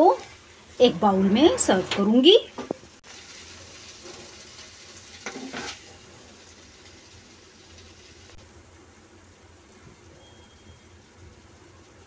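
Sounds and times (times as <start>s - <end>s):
faint steady hiss: 0.0s - 12.0s
wooden spatula scraping a pan: 5.1s - 6.0s.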